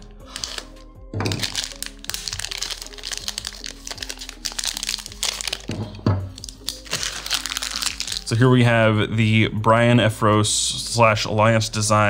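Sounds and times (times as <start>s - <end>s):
soft background music: 0.0s - 12.0s
plastic bag crinkling: 0.3s - 8.4s.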